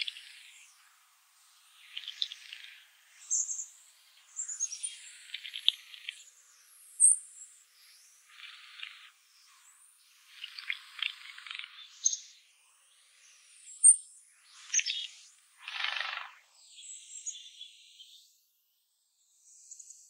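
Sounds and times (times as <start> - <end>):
wings fluttering: 15.6 - 16.4.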